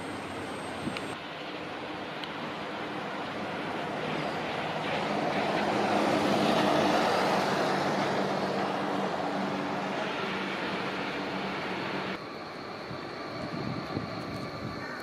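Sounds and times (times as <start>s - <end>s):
vehicle passing: 2.4s - 12.2s.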